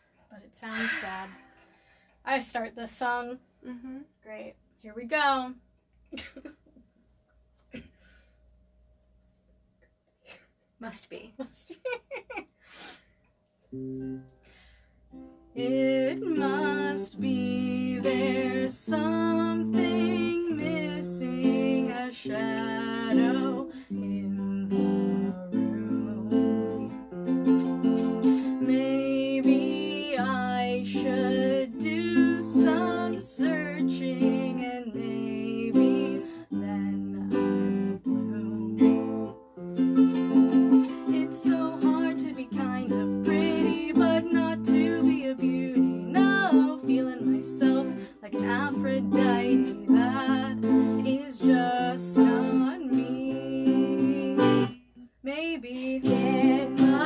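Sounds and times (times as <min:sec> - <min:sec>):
woman singing: 0:15.5 - 0:27.0, 0:27.8 - 0:39.5, 0:40.7 - 0:57.0
ukulele strumming: 0:15.6 - 0:54.8, 0:55.8 - 0:57.0.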